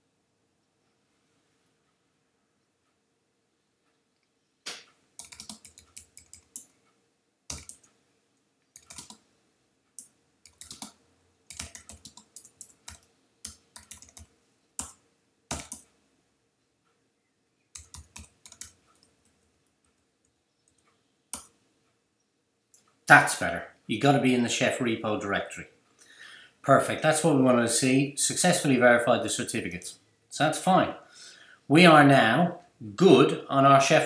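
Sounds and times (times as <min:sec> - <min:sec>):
typing on computer keyboard: 0:05.2 - 0:06.7, 0:07.5 - 0:07.9, 0:08.8 - 0:09.2, 0:10.0 - 0:15.9, 0:17.7 - 0:21.5.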